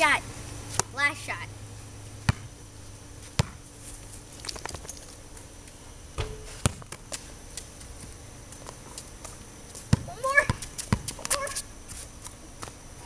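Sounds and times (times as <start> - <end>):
basketball bouncing on concrete: 2.2 - 2.6, 3.3 - 3.6, 6.2 - 7.2, 8.6 - 11.5.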